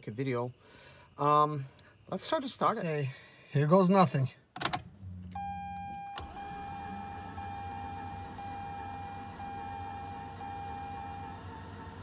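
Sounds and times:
dashboard warning beeps: 0:05.3 - 0:11.9.

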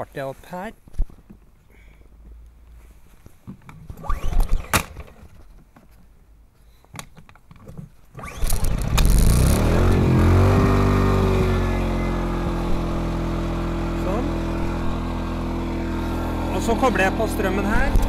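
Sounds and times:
recoil starter pulls rattling: 0:08.2 - 0:10.1
generator engine running: 0:08.2 - 0:18.0.

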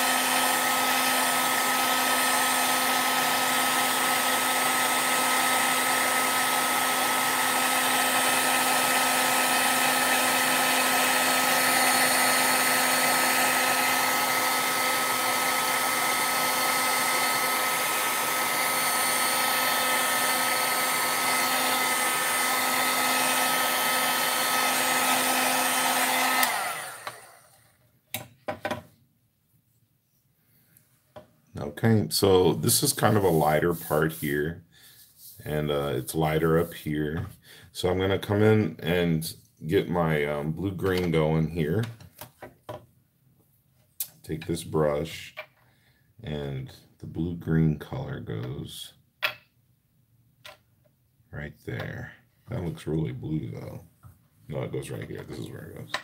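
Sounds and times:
heat tool blowing hot air: 0:00.0 - 0:27.6.

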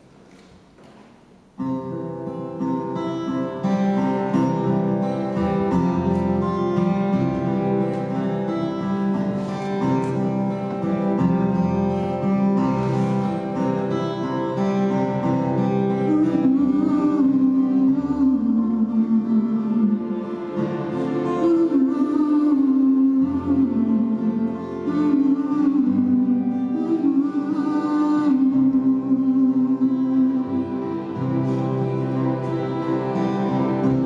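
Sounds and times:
acoustic guitar chords: 0:00.0 - 0:34.0
man singing: 0:16.0 - 0:20.4, 0:21.3 - 0:31.0.

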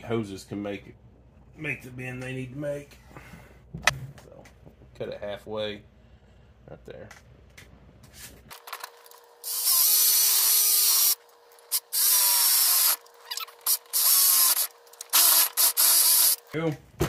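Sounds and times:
power tool spinning and grinding: 0:08.5 - 0:16.5.

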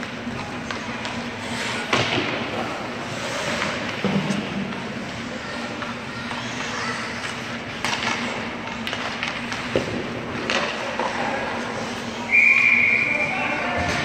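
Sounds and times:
hockey sticks and puck clacking: 0:00.0 - 0:02.4, 0:03.1 - 0:12.7
low arena hum: 0:00.0 - 0:14.0
skates scraping on ice: 0:03.0 - 0:12.2.

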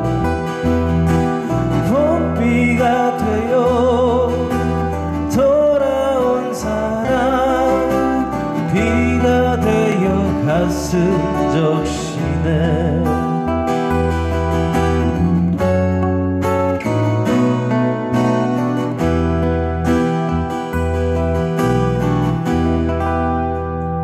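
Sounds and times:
strummed acoustic guitars: 0:00.0 - 0:24.0
man singing a slow ballad: 0:01.4 - 0:14.0.

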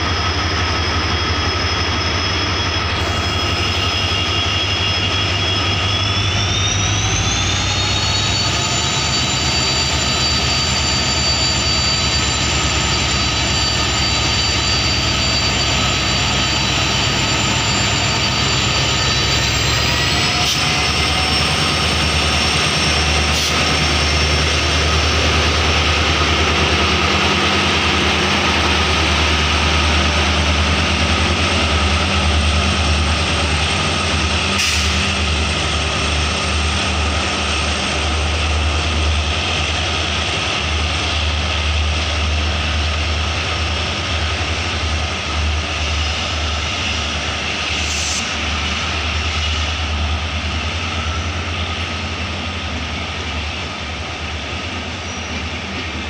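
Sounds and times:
turbocharger whine: 0:00.0 - 0:39.8
diesel locomotive engine accelerating: 0:00.0 - 0:56.0.

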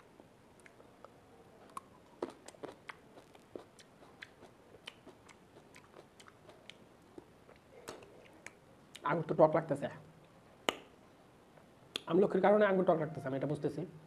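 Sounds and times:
person chewing grape: 0:00.0 - 0:09.1
mouth clicks: 0:00.6 - 0:09.1, 0:10.6 - 0:11.0, 0:11.9 - 0:12.1.

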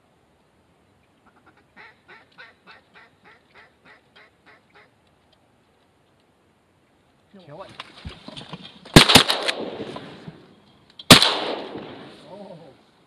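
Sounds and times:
duck quacking: 0:01.2 - 0:04.9.

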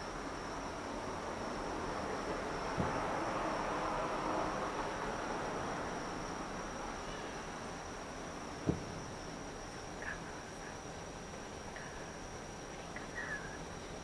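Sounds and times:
background hiss: 0:00.0 - 0:14.0
crickets trilling: 0:00.0 - 0:14.0
distant firework boom: 0:02.7 - 0:03.0, 0:08.6 - 0:09.1.

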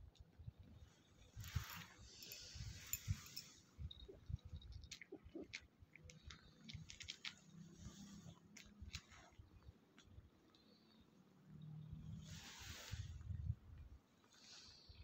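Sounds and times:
rustling of fur and bedding: 0:01.3 - 0:03.6, 0:07.4 - 0:09.3, 0:12.2 - 0:13.2.

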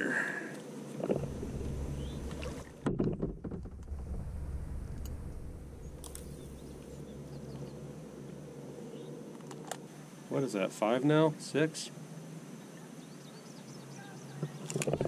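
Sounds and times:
fishing gear knocking and rustling: 0:01.0 - 0:05.1
low steady rumble: 0:01.0 - 0:10.0
faint bird chirps: 0:01.7 - 0:02.4, 0:05.3 - 0:09.2, 0:12.6 - 0:14.7.

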